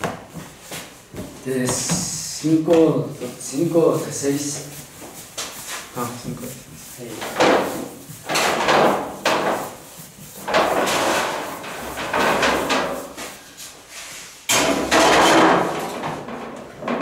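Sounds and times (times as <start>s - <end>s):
dough knocks and scrapes: 0.0s - 13.4s.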